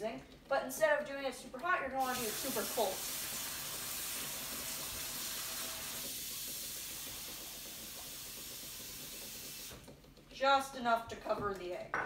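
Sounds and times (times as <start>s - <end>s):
faucet water running into bowl: 2.0s - 9.8s.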